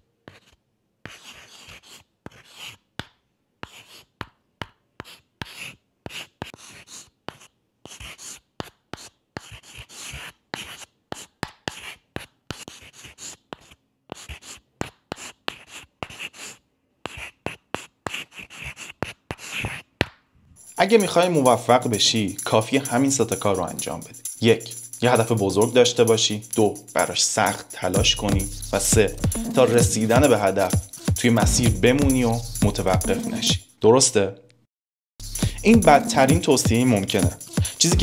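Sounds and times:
chalk scratching on blackboard: 0.2s - 2.9s, 3.6s - 19.9s, 20.6s - 33.6s, 35.2s - 38.0s
chalk tapping on board: 0.2s - 20.2s, 26.6s - 31.2s.

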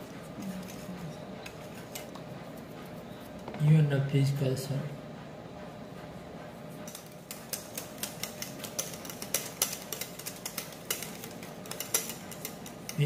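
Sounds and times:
whisk clicking against bowl: 6.9s - 13.0s.

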